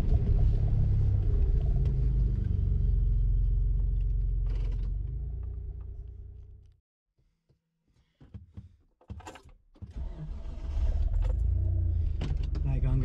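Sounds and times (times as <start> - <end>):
engine rumbling inside cab: 0.0 - 6.8, 9.9 - 13.0.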